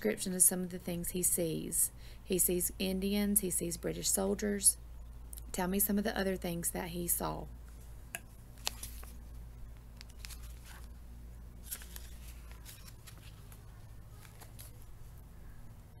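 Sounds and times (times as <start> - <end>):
low hum: 0.0 - 16.0
faint clicks and rustles: 7.6 - 15.6.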